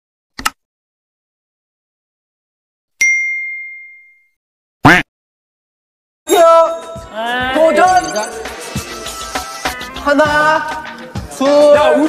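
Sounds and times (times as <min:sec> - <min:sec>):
bright bell ding: 0:03.0 - 0:04.4, 0:06.3 - 0:08.5
young man shouting: 0:06.3 - 0:08.0.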